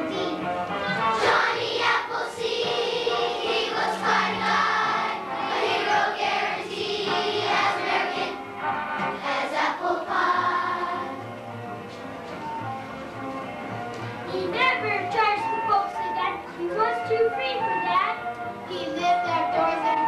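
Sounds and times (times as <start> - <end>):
children's choir singing: 0.0 - 8.4, 9.1 - 11.2.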